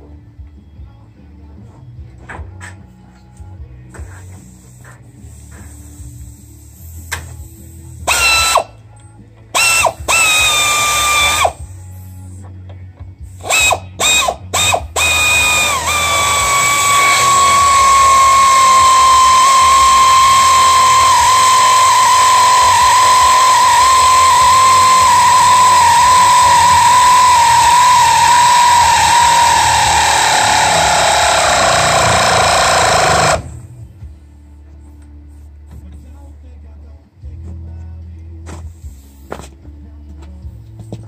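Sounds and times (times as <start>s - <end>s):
power drill motor whine: 8.1s - 8.8s, 9.6s - 11.7s, 13.4s - 33.8s.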